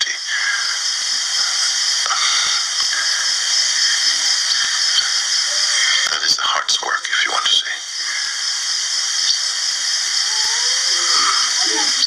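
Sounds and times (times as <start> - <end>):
recording noise hiss: 0.0 - 12.0.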